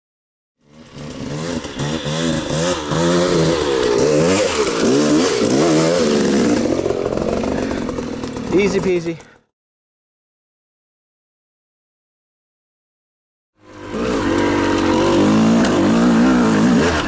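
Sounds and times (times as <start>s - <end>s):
dirt bike engine revving: 0.6s - 9.4s, 13.6s - 17.0s.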